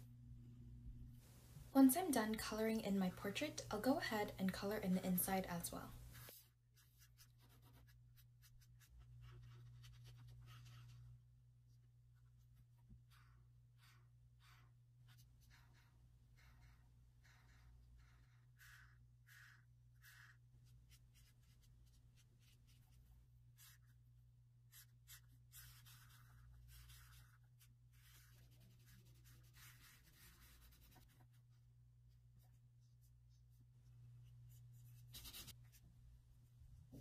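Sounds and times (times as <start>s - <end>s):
low electrical hum: 0.0s - 37.0s
markers scratching on paper: 6.1s - 11.2s, 12.2s - 23.0s, 23.6s - 24.0s, 24.7s - 31.5s, 34.5s - 35.6s.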